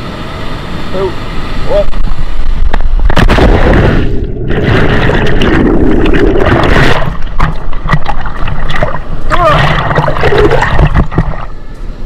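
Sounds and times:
loud splash into water: 3.1s - 11.5s.

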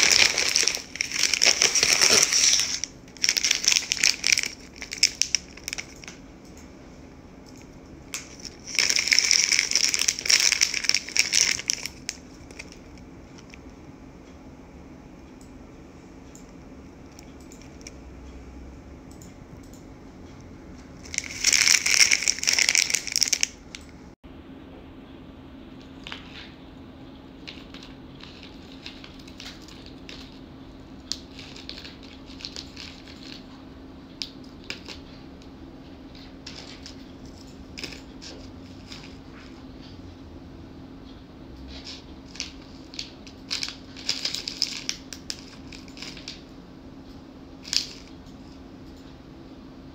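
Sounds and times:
plastic packet crinkling: 0.0s - 6.2s, 8.1s - 13.5s, 21.0s - 23.8s, 31.1s - 33.5s, 41.8s - 46.4s.

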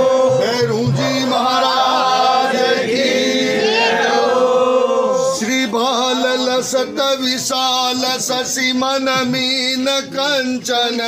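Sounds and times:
voices singing devotional hymn: 0.0s - 7.1s.

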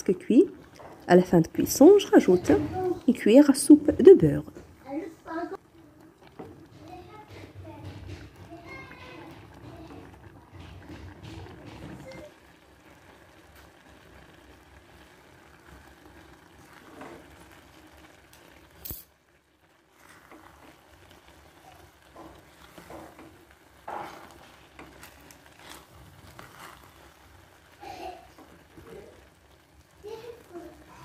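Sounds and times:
wooden spoon scraping pot: 0.0s - 4.8s, 6.0s - 18.8s, 19.8s - 31.0s.

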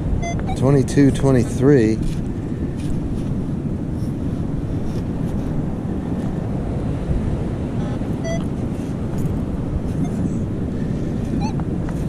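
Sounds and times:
ocean surf: 0.0s - 12.0s
wind buffeting microphone: 0.0s - 12.0s
faint pitched tone: 7.8s - 8.6s, 9.9s - 10.4s.

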